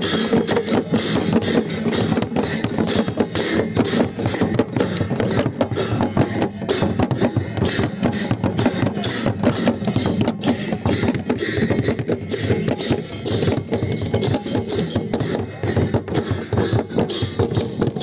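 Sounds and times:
barrel drums beaten with sticks: 0.0s - 18.0s
hand cymbals clashing: 0.0s - 18.0s.

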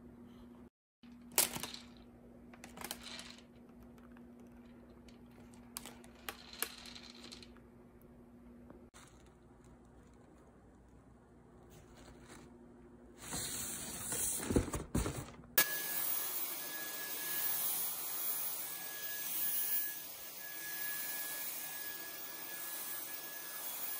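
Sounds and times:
rustling: 9.0s - 15.4s
cordless vacuum running: 15.6s - 23.9s.

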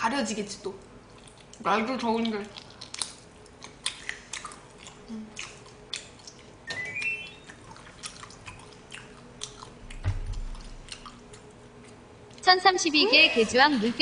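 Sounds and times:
wet chewing and lip-smacking: 0.8s - 12.5s
rising run of high tones: 6.7s - 7.5s.

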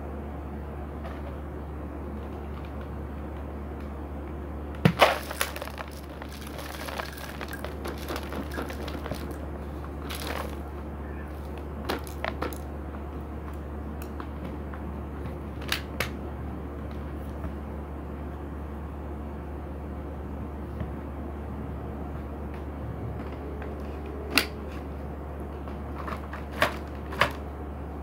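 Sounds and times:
low hum: 0.0s - 15.2s
seed hulls crunching: 4.9s - 12.7s.

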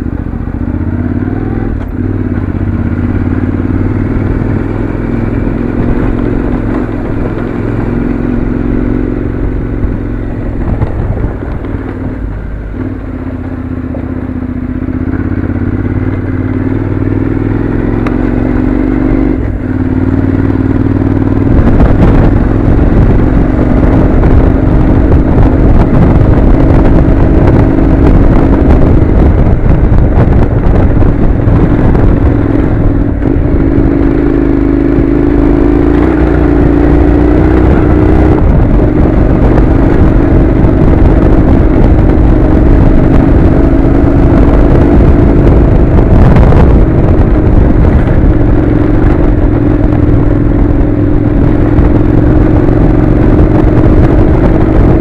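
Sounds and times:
motorcycle engine running: 0.0s - 55.0s
gravel rattle and clatter: 4.4s - 14.2s.

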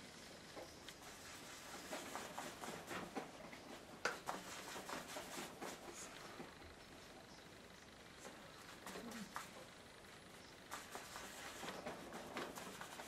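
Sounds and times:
paintbrush dabbing and scrubbing: 1.0s - 6.2s, 10.7s - 13.0s.

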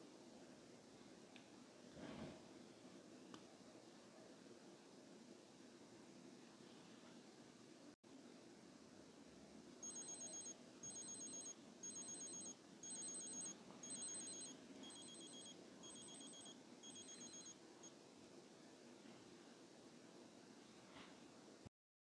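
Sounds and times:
watch alarm beeping: 9.8s - 17.6s.

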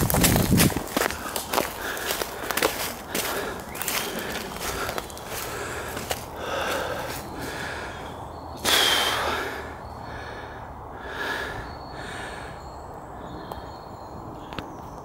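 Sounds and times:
footsteps in leaf litter: 0.0s - 7.3s
person breathing hard: 0.9s - 13.4s.

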